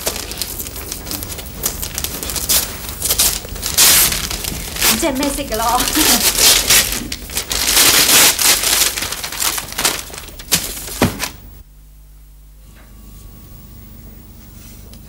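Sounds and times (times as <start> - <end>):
wrapping paper crinkling: 0.0 - 11.6
low steady hum: 0.0 - 15.0.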